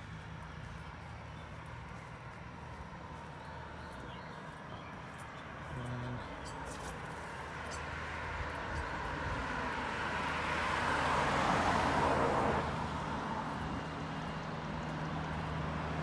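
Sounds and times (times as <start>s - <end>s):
car driving past: 5.7s - 13.6s.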